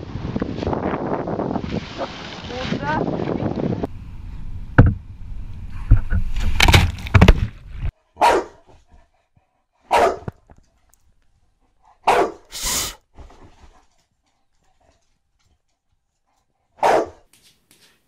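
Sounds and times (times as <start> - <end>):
wind buffeting microphone: 0.0 - 7.9
sharp thumps: 4.5 - 7.9
dog barking: 8.2 - 8.7, 9.9 - 10.3, 12.0 - 12.5, 16.8 - 17.3.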